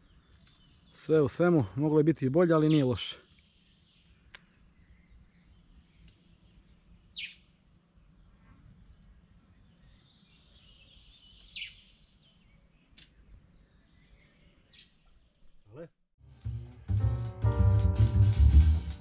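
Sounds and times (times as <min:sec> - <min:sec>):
faint bird twittering: 0:02.6 - 0:07.5
bird chirps: 0:09.8 - 0:15.7.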